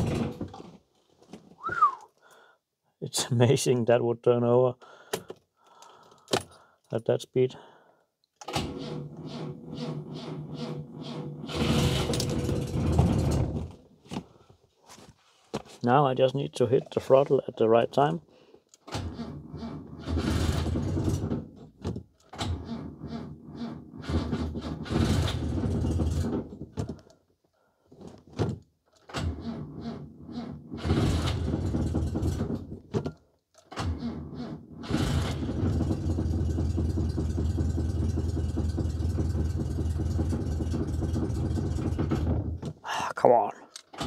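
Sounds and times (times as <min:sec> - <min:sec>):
car engine starting and running: 0:08.4 - 0:13.9, 0:18.8 - 0:26.7, 0:29.1 - 0:32.9, 0:33.7 - 0:42.8.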